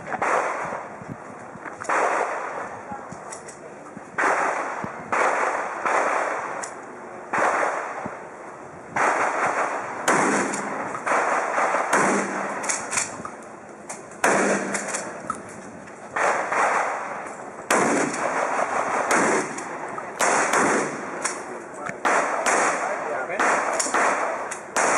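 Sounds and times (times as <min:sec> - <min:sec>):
shotgun shots with echo: 0:00.2 - 0:00.8, 0:01.9 - 0:02.7, 0:04.2 - 0:06.6, 0:07.3 - 0:08.1, 0:09.0 - 0:13.1, 0:14.2 - 0:15.2, 0:16.2 - 0:24.9.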